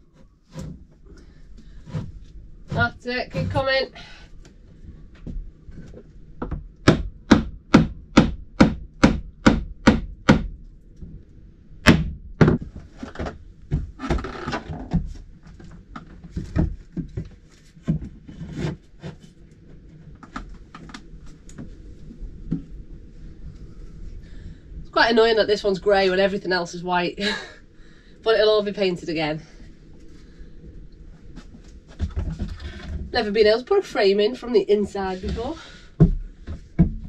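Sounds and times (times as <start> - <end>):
hammer striking timber: 6.8 - 10.5, 11.9 - 12.6.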